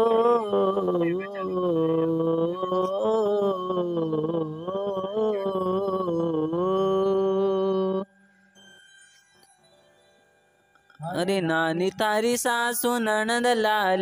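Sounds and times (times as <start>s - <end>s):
man singing long note: 0.0s - 8.1s.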